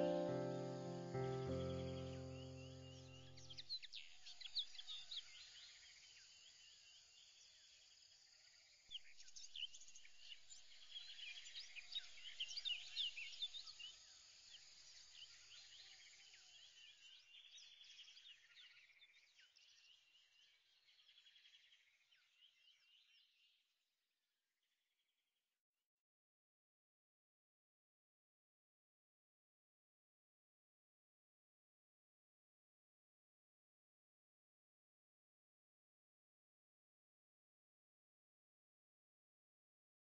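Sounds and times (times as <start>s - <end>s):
faint birds chirping: 0.0s - 8.2s.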